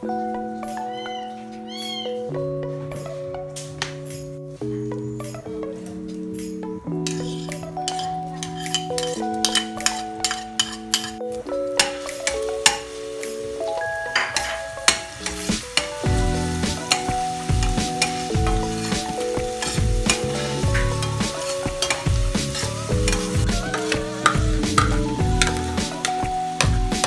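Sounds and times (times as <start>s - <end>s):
metal spatula scraping pan: 7.0s - 11.2s
garlic sizzling in oil: 7.2s - 27.0s
background music with bass beat: 15.2s - 27.0s.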